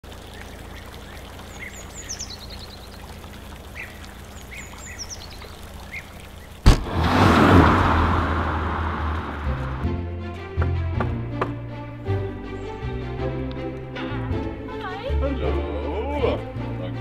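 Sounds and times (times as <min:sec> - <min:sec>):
birds chirping: 0:00.0 - 0:06.7, 0:11.2 - 0:13.9
car engine rumble: 0:00.0 - 0:11.9
rushing tyre noise: 0:05.2 - 0:10.0
sudden loud hit: 0:06.6 - 0:09.1.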